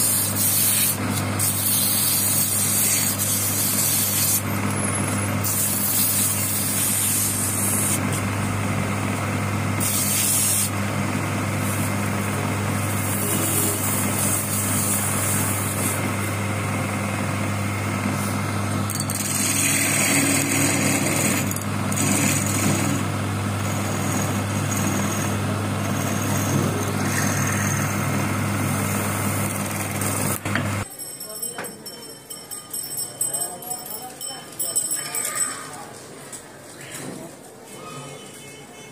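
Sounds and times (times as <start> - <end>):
sandpaper hissing on spinning wood: 0.0 - 4.6, 5.4 - 8.2, 9.8 - 10.8, 12.9 - 16.1
wood lathe humming: 0.0 - 30.8.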